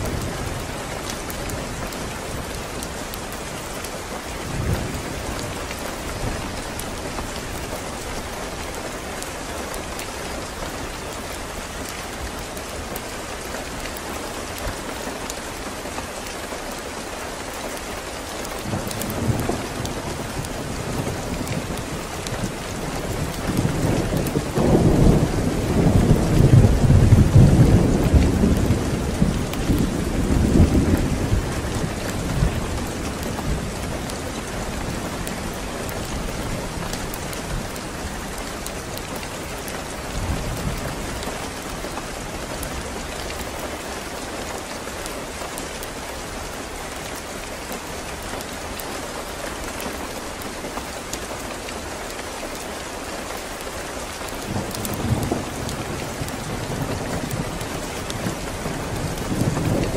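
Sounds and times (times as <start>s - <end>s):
steady rain: 0.0s - 59.9s
thunder rumbling: 18.6s - 43.0s, 54.4s - 59.9s.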